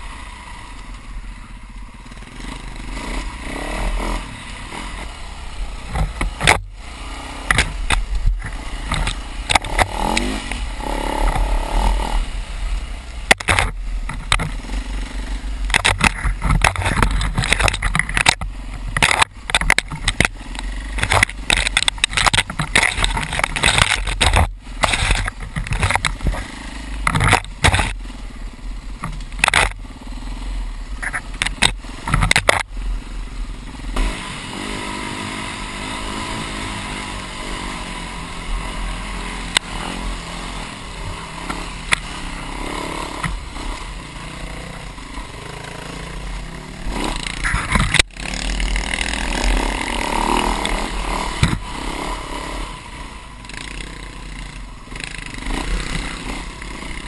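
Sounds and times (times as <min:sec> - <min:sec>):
dirt bike engine revving: 0:00.0 - 0:57.0
branches scraping against helmet: 0:15.6 - 0:28.0, 0:31.0 - 0:32.7, 0:46.1 - 0:53.9.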